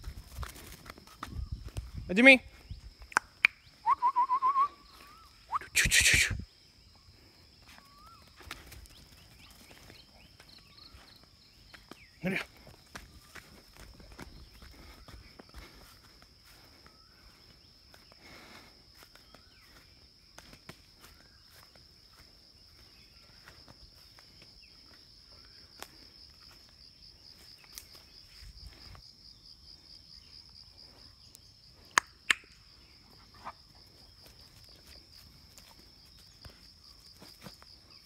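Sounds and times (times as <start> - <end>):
high-pitched insect trill: 0.0 - 38.0
footsteps through grass: 7.6 - 25.0.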